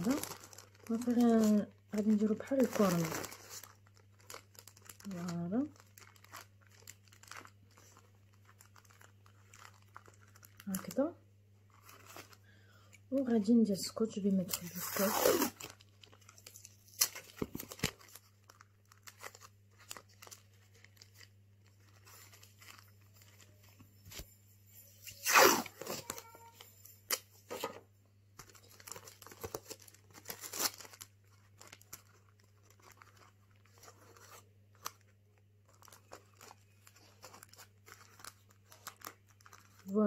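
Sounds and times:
plastic crinkling: 0.0 - 40.0
adhesive tape pulled and torn: 25.1 - 26.0.

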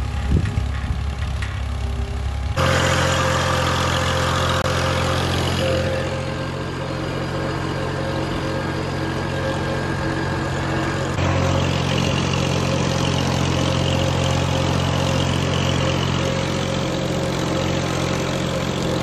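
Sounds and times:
tractor diesel engine running: 0.0 - 19.0.

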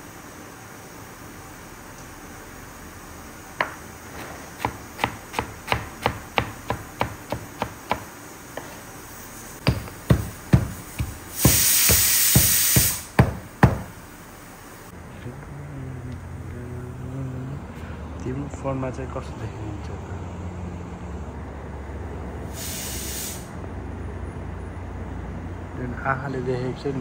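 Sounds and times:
knife chopping on wooden board: 3.6 - 8.8, 9.6 - 13.9
loud hiss: 7.3 - 15.0, 22.4 - 23.6.

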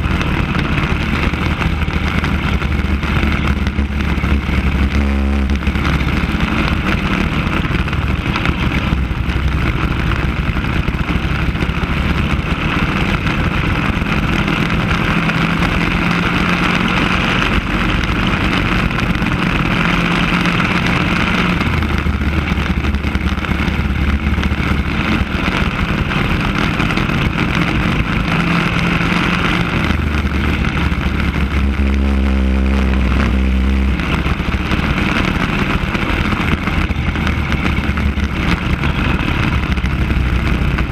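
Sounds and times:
racing kart engine: 0.0 - 40.9.

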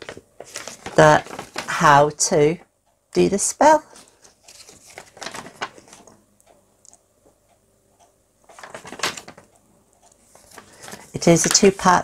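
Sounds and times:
paper sheet rustling: 0.0 - 2.0, 3.9 - 6.2, 8.5 - 9.5, 10.3 - 11.9.

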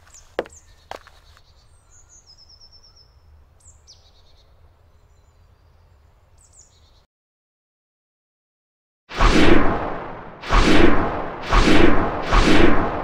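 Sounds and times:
songbirds calling: 0.0 - 7.1.

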